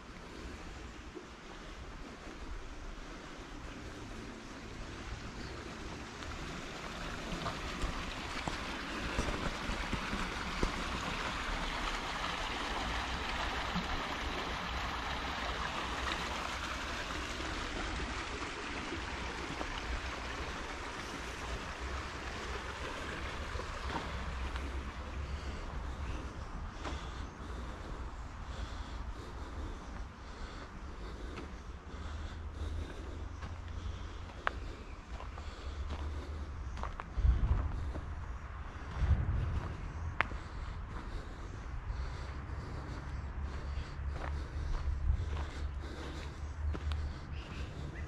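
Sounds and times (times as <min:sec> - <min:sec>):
running water rushing: 0:01.1 - 0:26.0
low rumble: 0:37.0 - 0:42.4.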